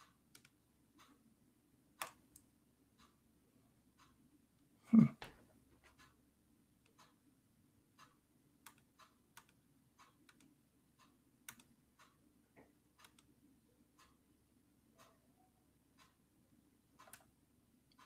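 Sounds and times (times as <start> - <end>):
irregular clicks: 0.0 - 1.2, 2.0 - 3.2, 8.0 - 13.3, 16.9 - 18.0
faint ticking: 7.9 - 18.0.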